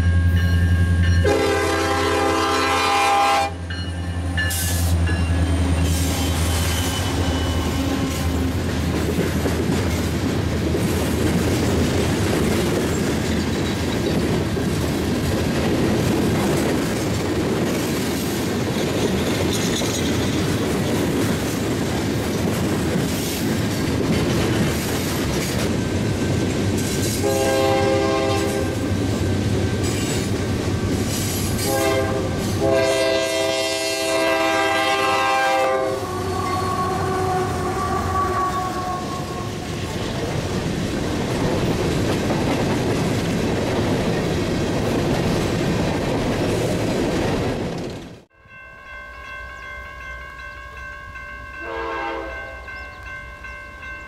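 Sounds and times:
locomotive air horn blasts: 0:01.2 - 0:03.6, 0:27.1 - 0:28.8, 0:31.6 - 0:39.7, 0:51.6 - 0:52.7
train wheels clattering on rails: 0:03.7 - 0:34.0, 0:39.3 - 0:48.3.

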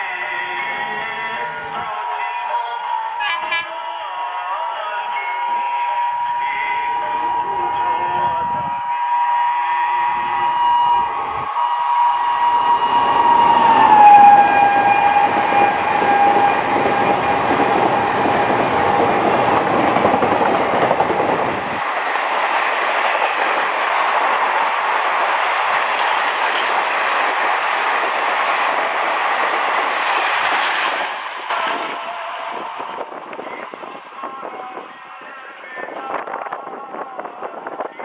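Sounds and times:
train wheel and rail noise: 0:00.0 - 0:38.0
locomotive horn: 0:02.6 - 0:04.0, 0:05.3 - 0:20.2.

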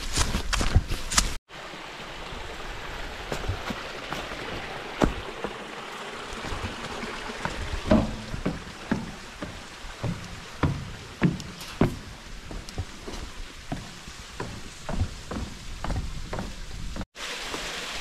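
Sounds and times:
waterfall trickling and splashing: 0:00.0 - 0:18.0
knocks: 0:07.5 - 0:12.1.

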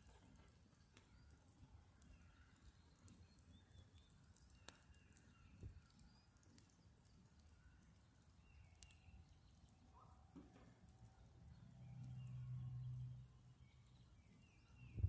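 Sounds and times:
fire crackling and popping: 0:00.0 - 0:09.8.

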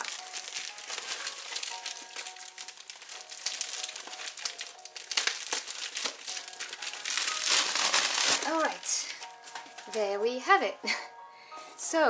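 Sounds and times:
plastic mailer bag crinkling: 0:00.0 - 0:10.0.

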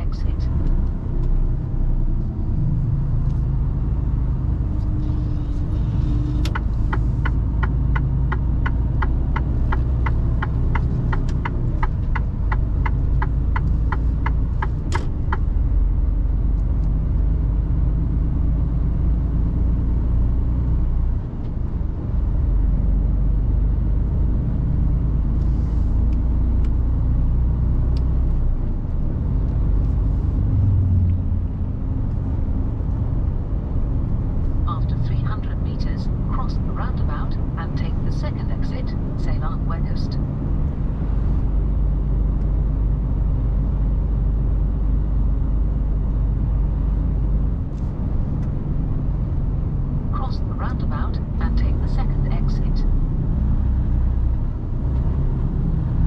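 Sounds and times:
truck engine and road rumble: 0:00.0 - 0:56.0
turn signal ticking: 0:06.1 - 0:15.8.

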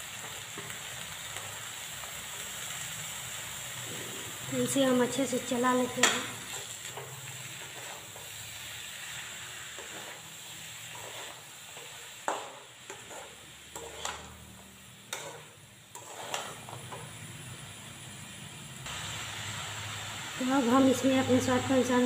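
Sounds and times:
frying sizzle: 0:00.0 - 0:22.0
spatula scraping a metal pan: 0:05.9 - 0:08.4, 0:09.7 - 0:14.4, 0:15.1 - 0:17.1.

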